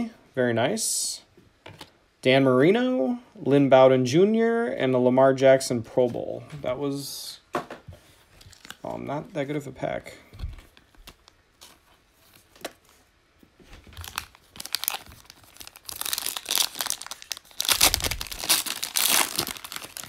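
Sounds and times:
foil wrapper crinkling and tearing: 13.9 - 20.0.

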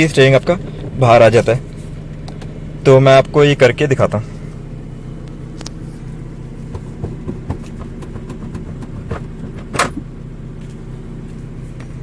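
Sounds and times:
steady low hum: 0.0 - 12.0
steering wheel hub clicking and knocking: 6.7 - 10.1.

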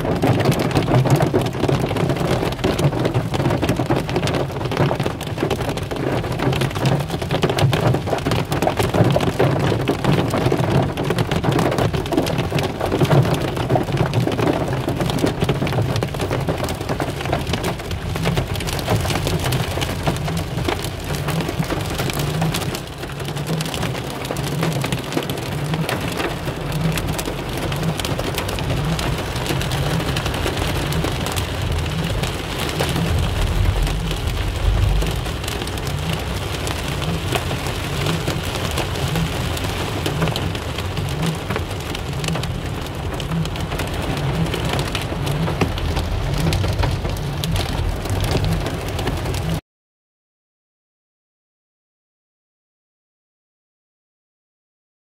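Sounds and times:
rain and hail on car roof: 0.0 - 49.6
low rumble: 25.9 - 49.6.

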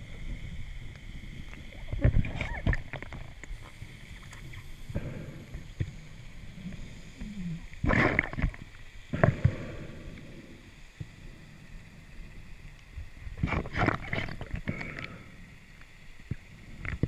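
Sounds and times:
exhaled bubbles rushing underwater: 0.0 - 10.0, 13.2 - 15.1.

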